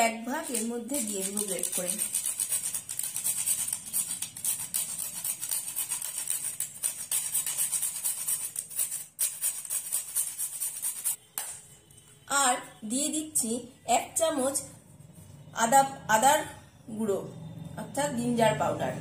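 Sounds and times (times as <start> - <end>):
nutmeg rasping on grater: 0.4 - 11.2.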